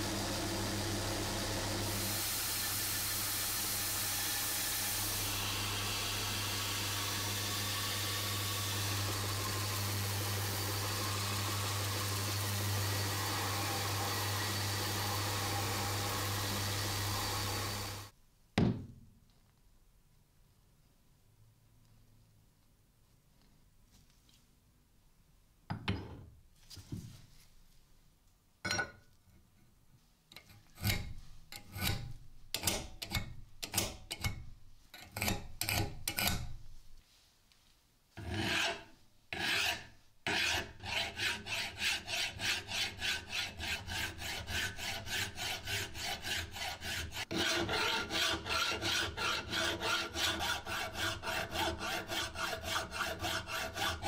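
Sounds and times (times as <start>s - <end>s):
hand file scraping steel: 30.4s - 36.6s, 38.2s - 54.0s.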